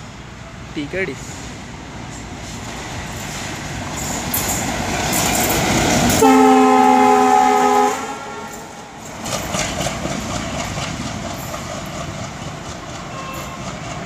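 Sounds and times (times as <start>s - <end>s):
locomotive engine and wheel noise: 0.0s - 14.0s
locomotive horn blast: 6.1s - 8.7s.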